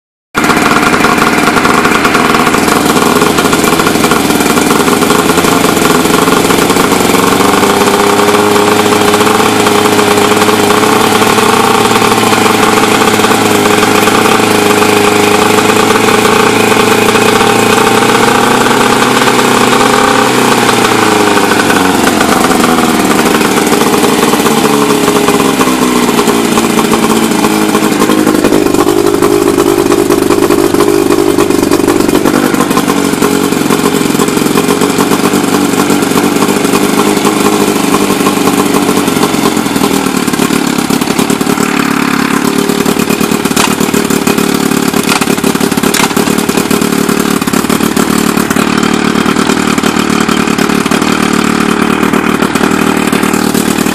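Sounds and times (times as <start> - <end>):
outboard motor running: 0.3 - 53.9.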